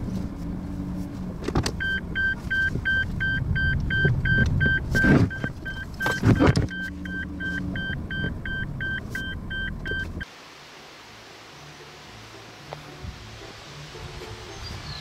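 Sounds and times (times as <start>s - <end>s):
car running noise: 0.0s - 10.3s
turn signal ticking: 1.6s - 10.3s.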